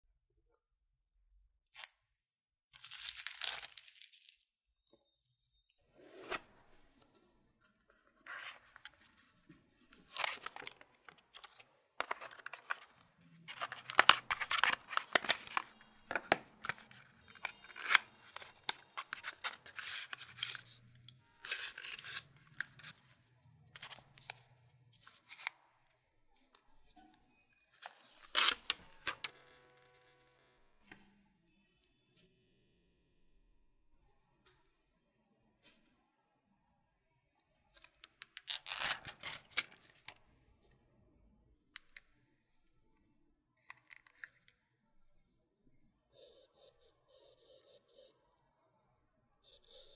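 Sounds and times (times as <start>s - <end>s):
wrapping rustling: 2.8s - 4.4s.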